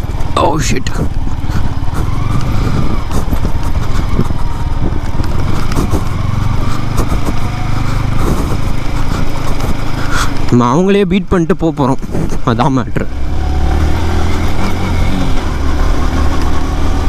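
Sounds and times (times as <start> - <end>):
motorcycle engine rumbling: 0.0 - 17.0.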